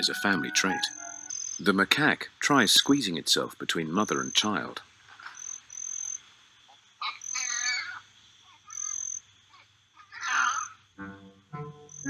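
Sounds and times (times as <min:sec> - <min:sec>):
insect trilling: 0:00.9 - 0:01.8, 0:02.8 - 0:11.0, 0:11.6 - 0:12.0
wavering animal call: 0:07.0 - 0:08.0, 0:10.0 - 0:12.0.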